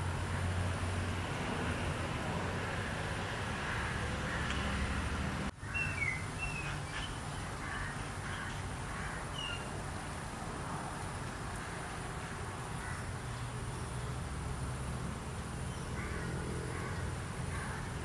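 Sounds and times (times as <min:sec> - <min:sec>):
bird chirping: 0:05.6 - 0:08.6.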